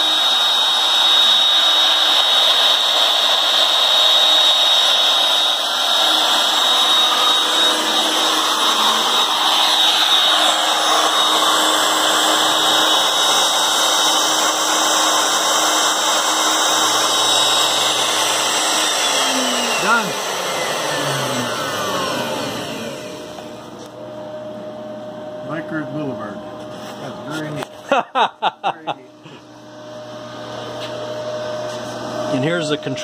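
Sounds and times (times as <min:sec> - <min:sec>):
router motor high-pitched whine: 0:00.0 - 0:25.6.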